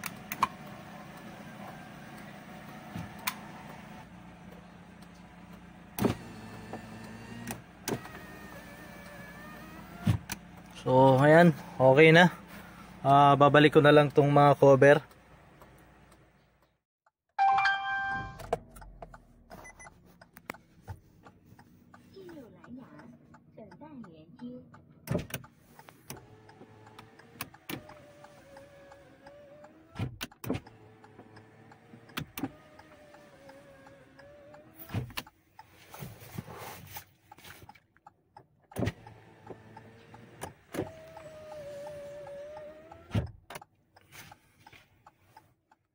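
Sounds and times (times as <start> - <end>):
power window motor: 0.0 - 4.2, 5.3 - 13.0, 25.1 - 35.3, 38.7 - 43.6
dashboard warning chime: 17.4 - 19.0.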